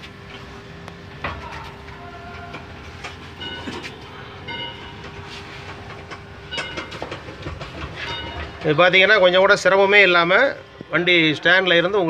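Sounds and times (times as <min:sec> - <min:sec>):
trolley casters rumbling on concrete: 0:01.6 - 0:09.8.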